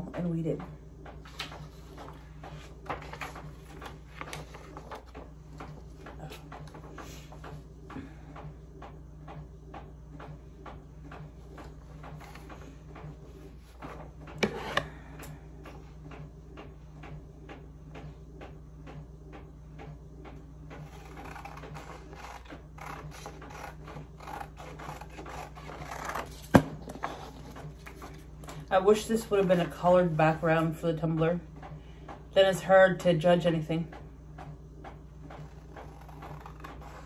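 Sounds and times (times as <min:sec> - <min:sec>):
low steady hum: 0:00.0 - 0:37.0
scissors snipping paper: 0:20.9 - 0:27.9, 0:35.4 - 0:37.0.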